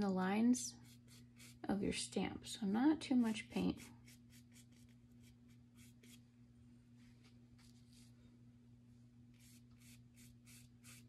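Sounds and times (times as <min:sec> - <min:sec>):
steady low hum: 0:00.0 - 0:11.0
faint paintbrush strokes: 0:03.2 - 0:06.3, 0:06.9 - 0:08.3, 0:09.3 - 0:11.0.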